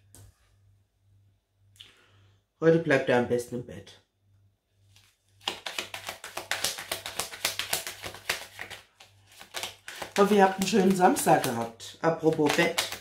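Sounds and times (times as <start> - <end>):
cards being shuffled: 4.9 - 13.0.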